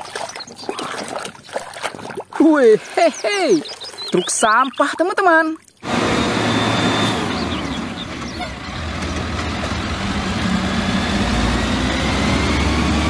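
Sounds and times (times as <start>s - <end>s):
garbage truck diesel engine idling: 5.9s - 11.2s.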